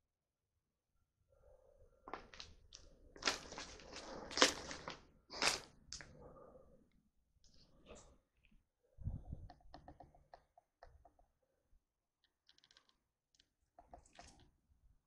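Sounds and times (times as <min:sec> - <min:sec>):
small clicks and crackles: 0:02.1 - 0:06.1, 0:12.2 - 0:14.6
footsteps crunching over debris: 0:03.2 - 0:05.6.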